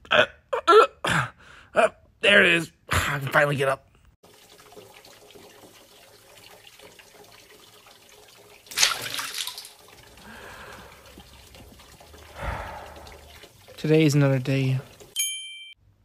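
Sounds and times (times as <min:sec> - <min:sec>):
breathy exhale: 0:10.2 - 0:11.1, 0:12.3 - 0:13.4
tap running: 0:10.6 - 0:12.3.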